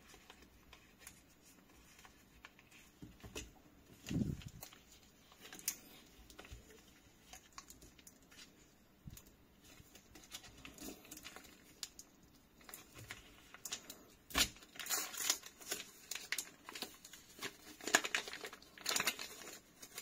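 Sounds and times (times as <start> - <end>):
plastic wrapper crinkling: 0.0 - 20.0.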